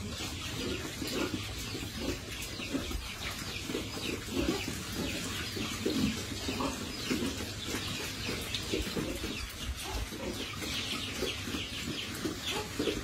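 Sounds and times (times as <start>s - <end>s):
pigs grunting: 0.0s - 7.6s.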